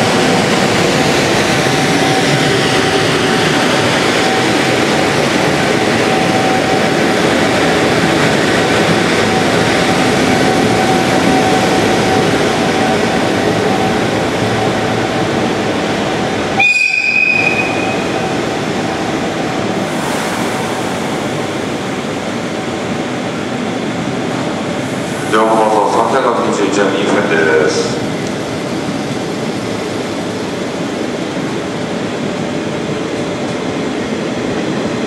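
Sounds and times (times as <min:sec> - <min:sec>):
train coaches rolling past: 0:00.0 - 0:35.0
high whistle: 0:16.6 - 0:18.1.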